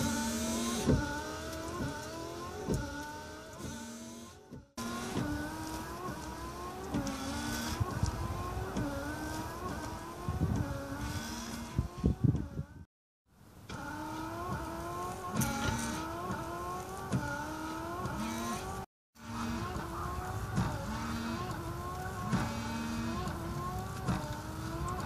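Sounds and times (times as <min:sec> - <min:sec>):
wiper blade sweeping glass: 0:00.0 - 0:12.8, 0:13.7 - 0:25.0
wiper motor whining: 0:00.0 - 0:12.9, 0:13.6 - 0:25.0.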